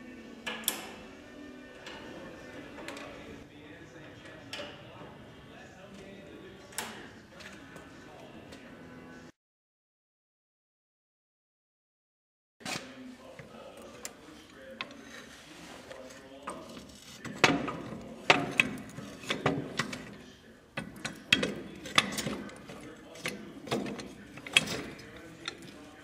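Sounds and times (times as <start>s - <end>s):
metal bars and chain clanking: 20.8s - 26.0s.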